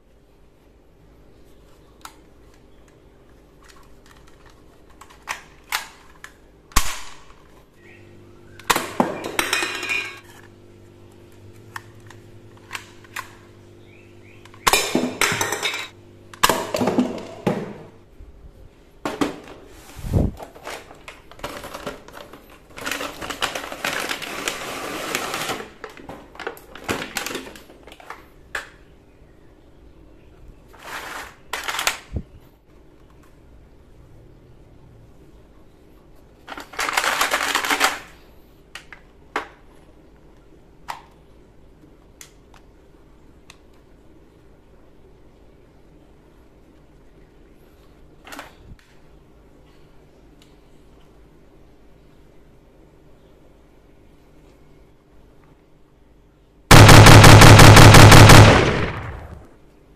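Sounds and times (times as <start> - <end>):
cups and cans clattering on tiles: 8.7 - 10.4, 14.7 - 17.8
toy gun plastic clicks: 36.5 - 38.1.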